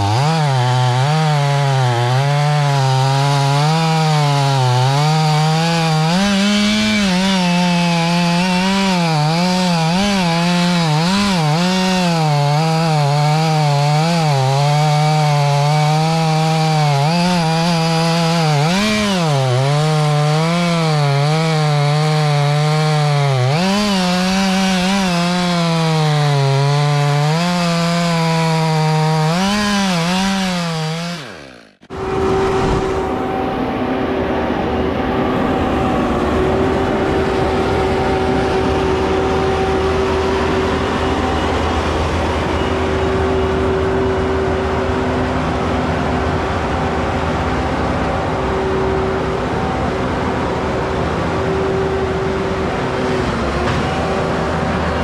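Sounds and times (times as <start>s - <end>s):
chainsaw cutting wood: 0.0s - 33.3s.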